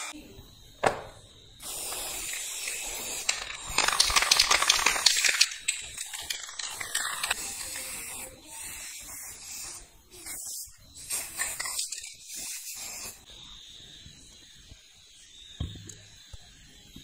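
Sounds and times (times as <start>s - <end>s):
spray can hissing: 1.6s - 13.3s.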